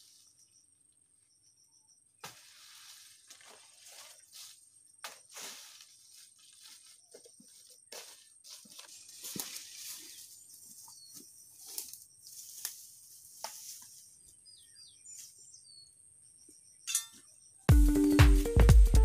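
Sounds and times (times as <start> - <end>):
footsteps crunching through dry leaves: 2.3 - 14.1
plants rustling: 2.3 - 14.4.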